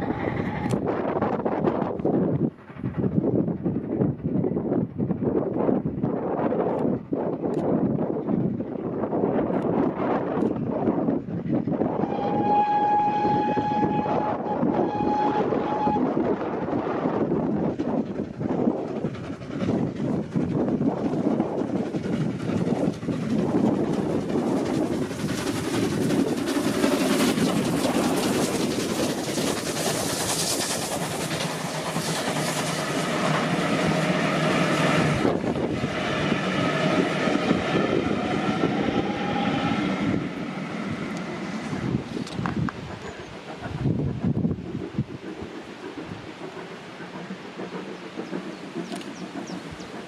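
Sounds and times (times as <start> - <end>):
steam locomotive passing: 0.0 - 50.0
train wheels clattering over rail joints: 12.3 - 50.0.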